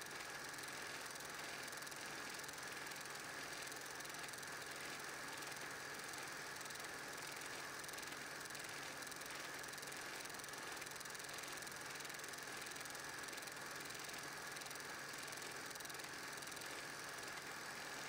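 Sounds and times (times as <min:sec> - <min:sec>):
film projector whirring and clattering: 0:00.0 - 0:18.0.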